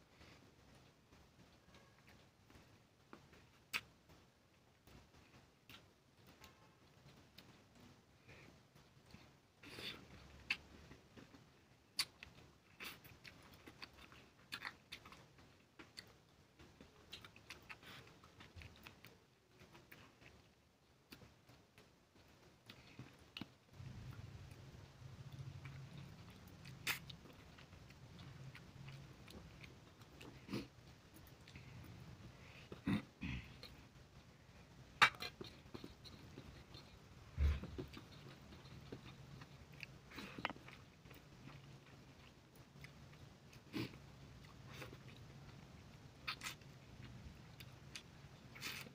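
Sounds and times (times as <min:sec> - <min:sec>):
small clicks and rustles: 0:00.3 - 0:09.4
person chewing: 0:01.7 - 0:03.9, 0:09.0 - 0:34.0, 0:35.0 - 0:48.9.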